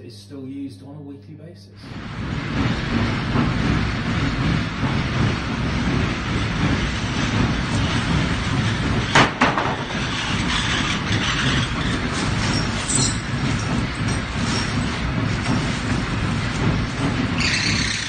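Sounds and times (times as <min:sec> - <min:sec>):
winch rattling rumble: 0:01.9 - 0:18.0
sharp knocks: 0:08.6 - 0:12.1.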